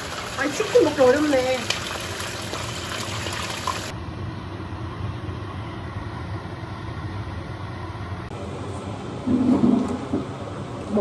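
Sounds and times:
chicken sizzling in hot oil: 0.0s - 4.0s.

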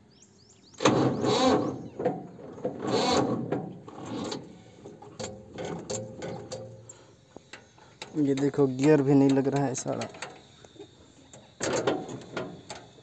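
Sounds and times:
tractor starter cranking: 0.8s - 7.0s, 11.6s - 13.0s.

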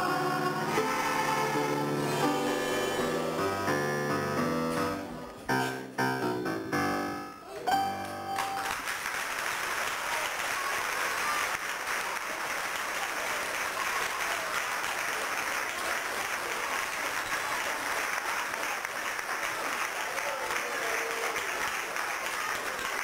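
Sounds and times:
piano accompaniment: 0.0s - 8.8s
audience applauding: 8.0s - 23.0s.

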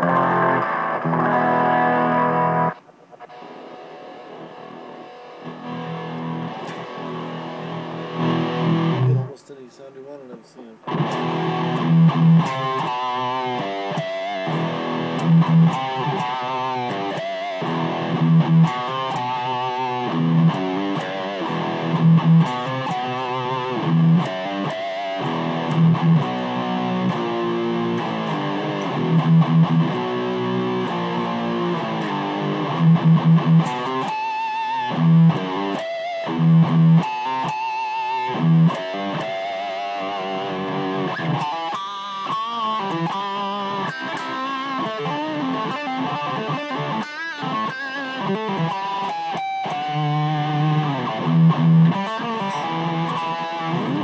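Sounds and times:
loud low guitar note: 0.0s - 2.8s
electric guitar lead line: 0.0s - 9.4s, 10.8s - 54.0s.

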